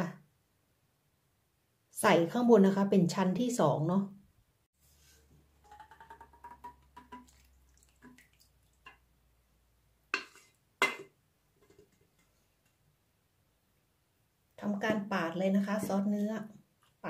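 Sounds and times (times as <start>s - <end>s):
wet squelches of sauce: 7.2s - 9.1s.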